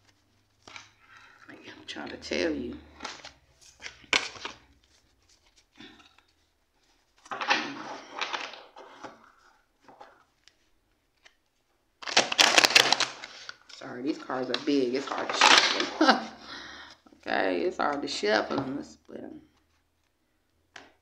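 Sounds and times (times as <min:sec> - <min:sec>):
cards shuffled by hand: 0:00.0 - 0:01.5, 0:02.7 - 0:09.2, 0:12.0 - 0:16.2
papery rustling and slapping: 0:03.0 - 0:09.1, 0:12.0 - 0:16.3.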